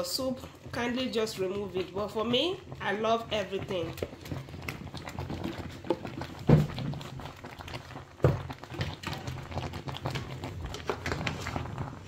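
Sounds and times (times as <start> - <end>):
mushrooms tumbling into pot: 3.9 - 12.0
louder thunks: 6.4 - 6.8.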